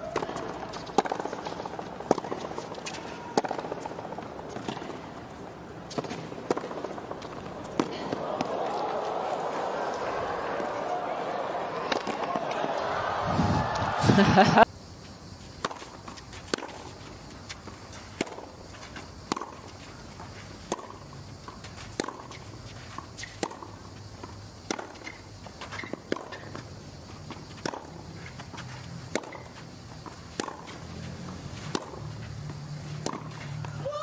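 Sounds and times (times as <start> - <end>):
low crowd background: 0.0 - 14.7
racket hitting tennis ball: 0.0 - 14.7, 15.6 - 26.6, 27.3 - 34.0.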